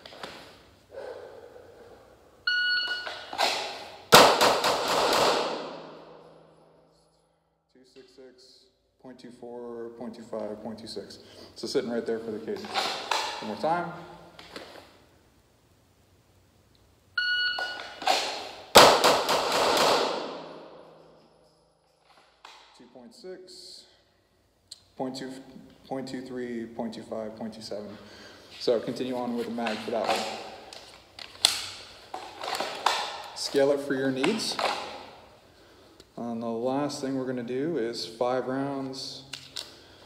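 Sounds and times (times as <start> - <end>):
shot timer beep: 2.4 - 3.3, 17.2 - 18.0
handgun shots echoing: 3.3 - 6.4, 18.0 - 20.8.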